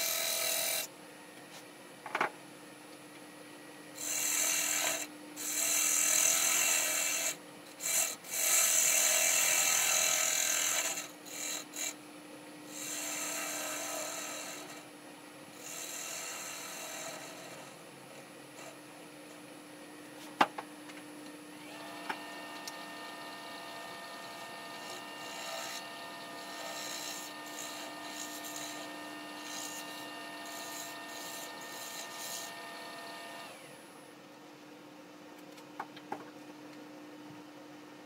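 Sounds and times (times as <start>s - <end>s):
wood lathe humming: 15.6s - 17.7s, 21.6s - 33.6s
lathe cutting whine: 21.6s - 33.6s.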